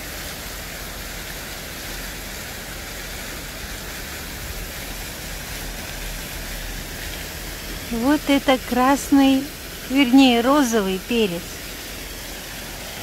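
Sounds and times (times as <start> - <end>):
low uneven rumble: 2.9 - 13.0.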